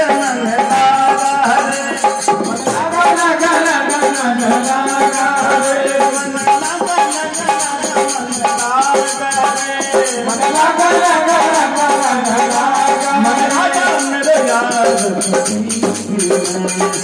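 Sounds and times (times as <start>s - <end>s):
dholak drumming: 0.0s - 17.0s
fast rattling percussion: 0.0s - 17.0s.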